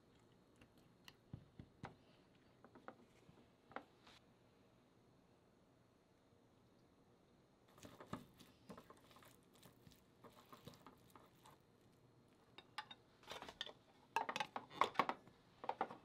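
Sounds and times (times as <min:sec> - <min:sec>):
chopsticks tossing cabbage in bowl: 0:07.7 - 0:13.5.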